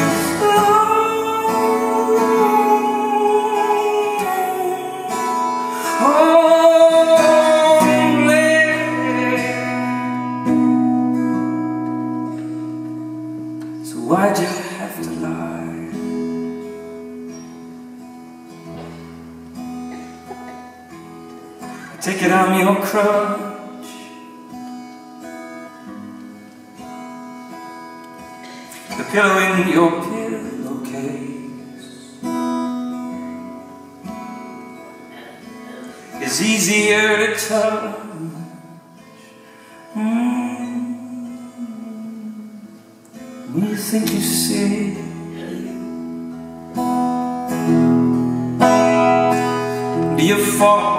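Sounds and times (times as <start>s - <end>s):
acoustic guitar chords: 0.0s - 50.9s
man singing long note: 0.2s - 10.0s.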